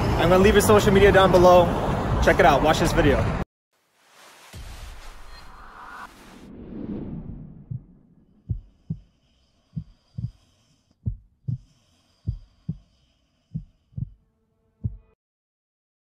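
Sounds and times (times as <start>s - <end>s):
heartbeat thumps: 7.6s - 9.1s, 9.8s - 10.4s, 11.0s - 12.8s, 13.5s - 14.2s, 14.8s - 15.2s.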